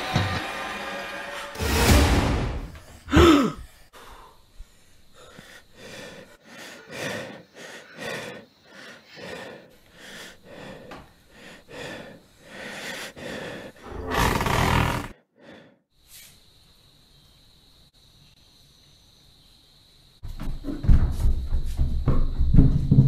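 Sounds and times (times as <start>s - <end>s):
man breathing heavily: 2.7s - 15.9s
man gasping: 2.8s - 4.4s, 5.2s - 14.0s.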